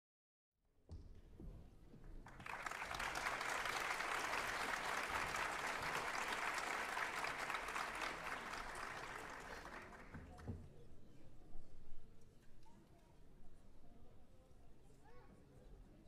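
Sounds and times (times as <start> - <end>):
audience applauding: 2.3 - 10.4.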